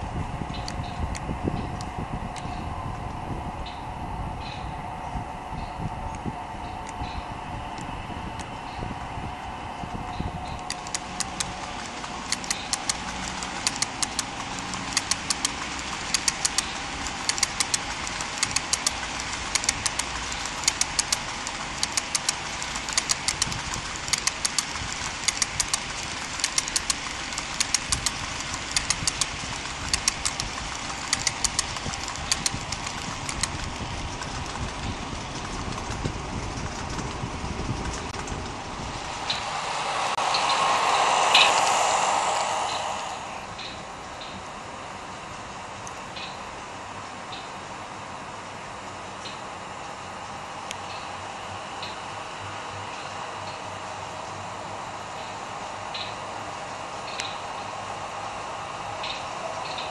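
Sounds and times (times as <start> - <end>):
steady hum: 0.0 - 46.8
model train wheels clicking: 9.8 - 44.4.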